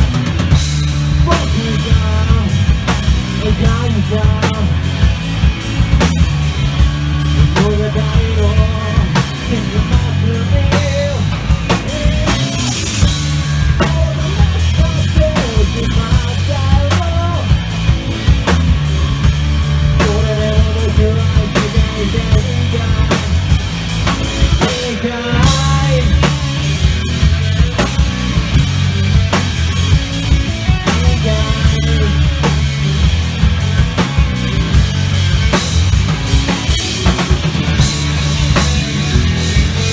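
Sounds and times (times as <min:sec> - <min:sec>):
distorted electric guitars: 0:00.0 - 0:39.9
drum kit: 0:00.0 - 0:39.9
person singing: 0:07.5 - 0:18.2, 0:20.0 - 0:23.4, 0:24.6 - 0:26.8, 0:30.8 - 0:32.5.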